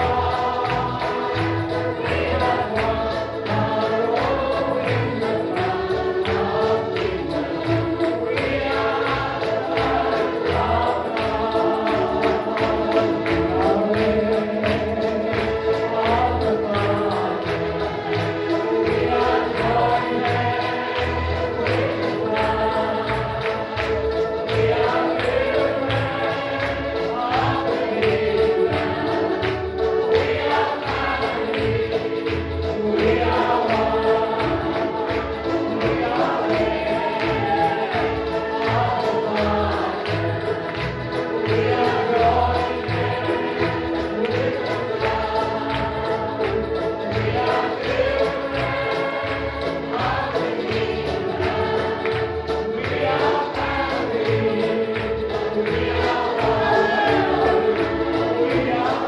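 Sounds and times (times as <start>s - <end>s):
voices singing over a beat: 0.0s - 59.0s.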